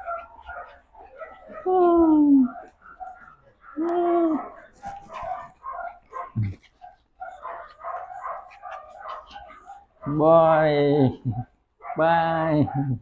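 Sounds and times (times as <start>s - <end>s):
puppies yipping and whimpering: 0.0s - 10.1s.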